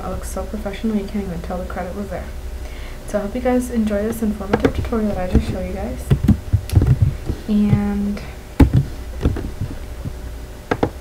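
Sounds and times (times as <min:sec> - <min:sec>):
low steady hum: 0:00.0 - 0:11.0
keyboard and mouse clicks: 0:10.7 - 0:11.0.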